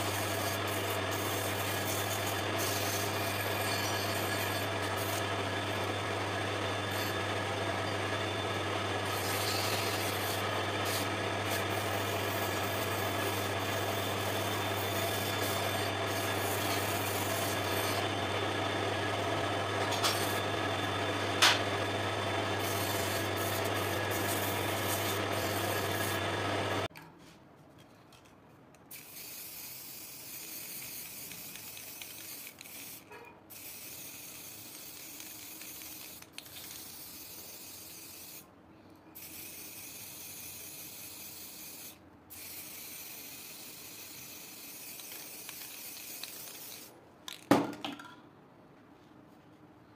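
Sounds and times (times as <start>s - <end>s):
wood lathe motor hum: 0.0s - 26.9s.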